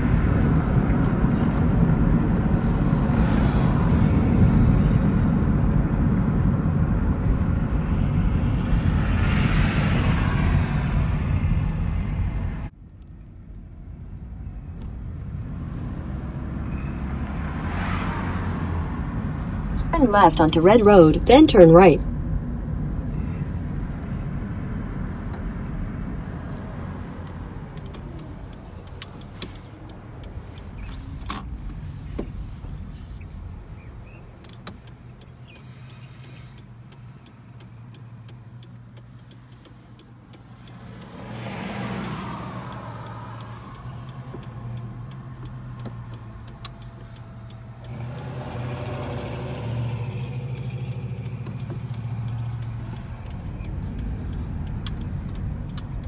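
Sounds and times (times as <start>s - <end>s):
car road and engine hum: 0.0s - 56.0s
sharp clicks: 37.6s - 56.0s.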